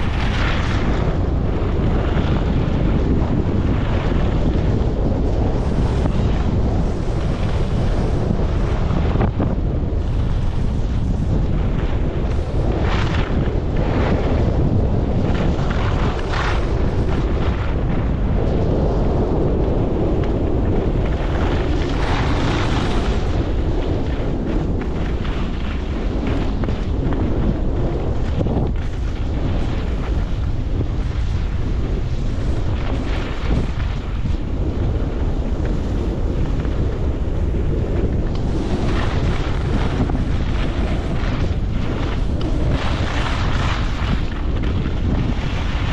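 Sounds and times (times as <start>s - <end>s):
skis scraping on snow: 0.0s - 45.9s
wind buffeting microphone: 0.0s - 45.9s.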